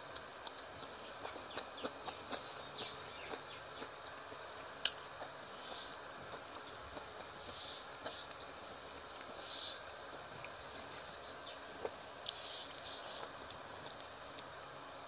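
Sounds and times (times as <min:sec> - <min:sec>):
wet chewing and lip smacks: 0:00.1 - 0:03.9, 0:08.9 - 0:11.2.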